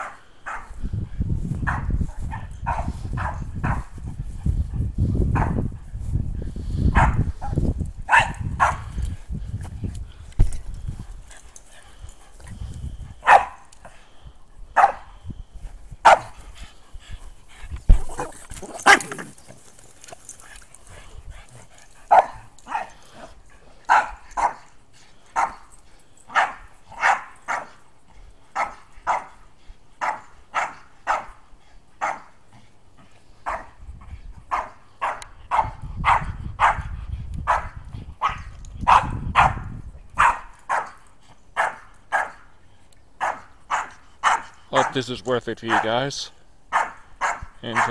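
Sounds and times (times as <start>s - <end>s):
dog barking: 0.0s - 0.7s, 1.7s - 3.9s, 7.0s - 7.2s, 8.1s - 8.9s, 13.2s - 13.6s, 14.8s - 15.1s, 16.0s - 16.3s, 22.1s - 23.0s, 23.9s - 24.6s, 25.4s - 25.6s, 26.3s - 27.8s, 28.6s - 29.4s, 30.0s - 31.4s, 32.0s - 32.3s, 33.4s - 33.8s, 34.5s - 39.6s, 40.2s - 41.0s, 41.6s - 42.4s, 43.2s - 45.0s, 45.7s - 46.0s, 46.7s - 47.9s.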